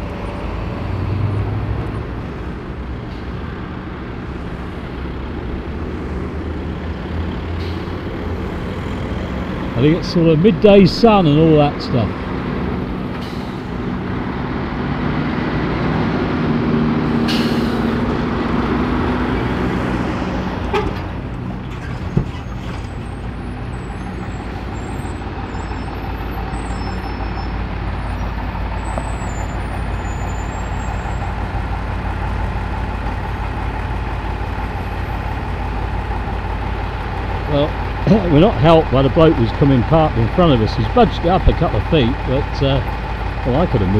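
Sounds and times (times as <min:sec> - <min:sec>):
diesel lorries passing: 0:00.0 - 0:43.9
truck diesel engine idling: 0:01.9 - 0:15.5, 0:17.0 - 0:43.9
air brakes hissing: 0:07.5 - 0:08.4, 0:13.1 - 0:13.8, 0:17.1 - 0:18.0.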